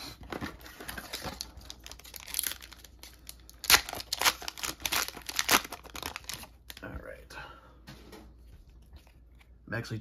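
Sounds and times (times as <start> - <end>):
foil pack crinkling and tearing: 0.3 - 7.0.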